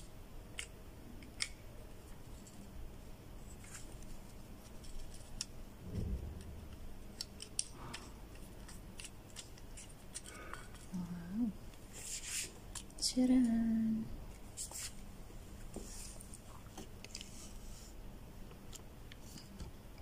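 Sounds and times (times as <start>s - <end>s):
soft low thump: 5.8s - 6.9s.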